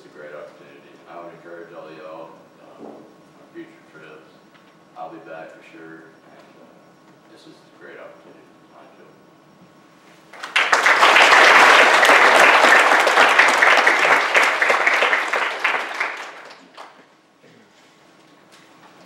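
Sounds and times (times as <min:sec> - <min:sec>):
crowd applauding: 0:10.4 - 0:17.0.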